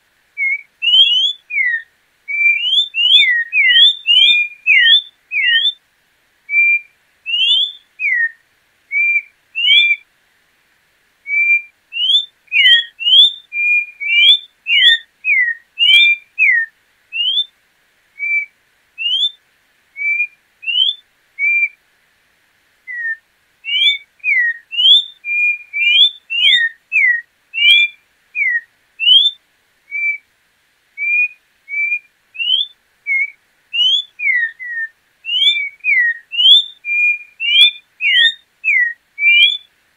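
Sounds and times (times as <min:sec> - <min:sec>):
bird whistling song: 0:00.4 - 0:05.8, 0:06.5 - 0:10.0, 0:11.3 - 0:17.5, 0:18.2 - 0:19.4, 0:20.0 - 0:21.8, 0:22.9 - 0:30.3, 0:31.0 - 0:39.7.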